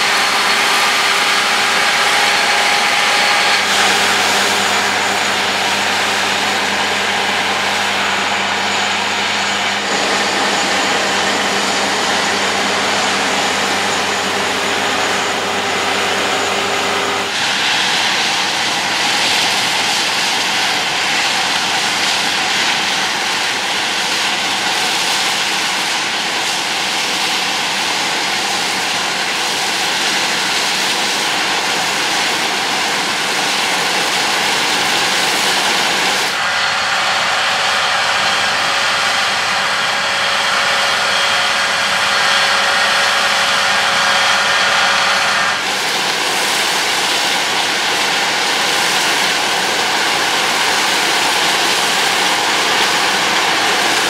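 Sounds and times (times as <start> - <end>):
combine harvester threshing: 0.0 - 27.7
high machine whines: 0.0 - 54.0.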